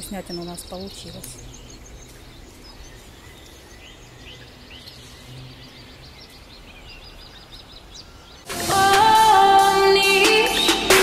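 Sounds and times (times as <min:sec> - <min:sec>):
small birds chirping: 0:00.0 - 0:08.5.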